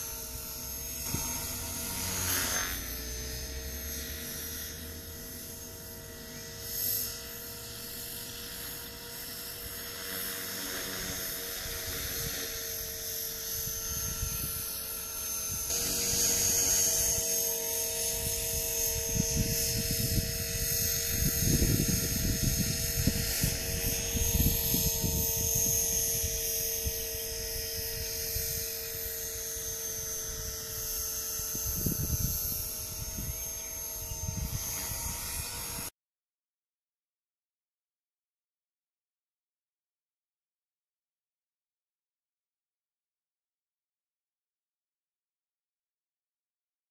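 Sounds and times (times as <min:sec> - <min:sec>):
rc helicopter motor whine: 0:00.0 - 0:36.0.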